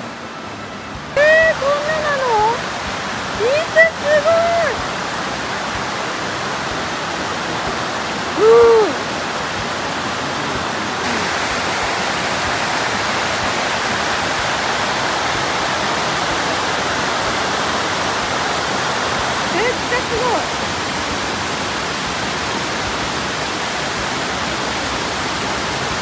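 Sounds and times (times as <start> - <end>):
waterfall rushing: 0.0 - 26.0
short vocal ooh: 8.3 - 9.2, 10.2 - 11.5.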